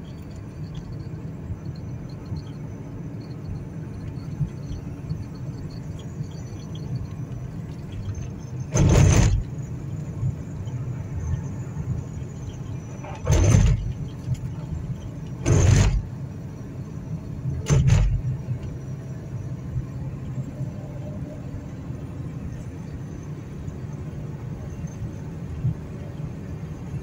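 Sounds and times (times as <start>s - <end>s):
road and engine hum: 0.0s - 27.0s
tyres over rumble strips: 13.0s - 16.1s.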